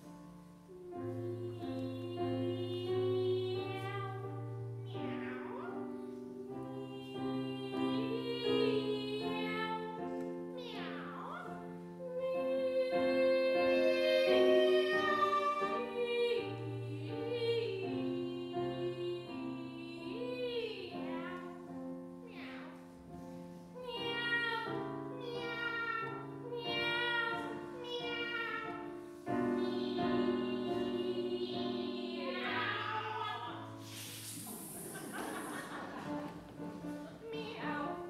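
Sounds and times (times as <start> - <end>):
piano accompaniment: 0.0 - 38.0
women singing operatic duet: 0.8 - 5.6, 6.4 - 11.3, 12.0 - 21.6, 29.4 - 33.8
hissing noise: 33.7 - 37.0.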